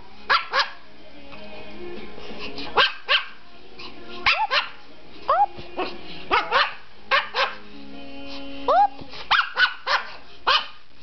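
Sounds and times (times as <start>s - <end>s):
small dog yapping: 6.3s - 7.6s.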